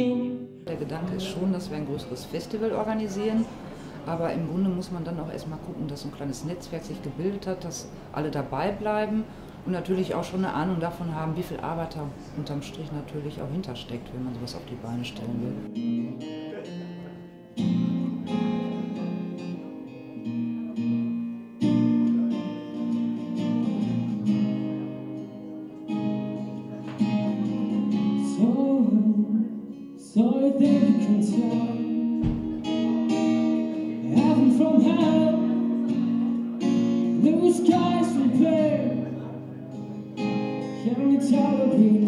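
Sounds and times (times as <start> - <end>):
acoustic guitar strumming: 0.0 - 4.8, 15.1 - 42.0
man singing: 27.4 - 36.3, 37.0 - 39.3, 40.8 - 42.0.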